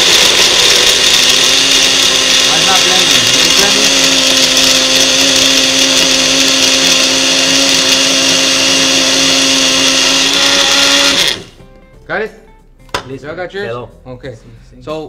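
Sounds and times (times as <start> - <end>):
electric blenders running: 0.0 - 11.6.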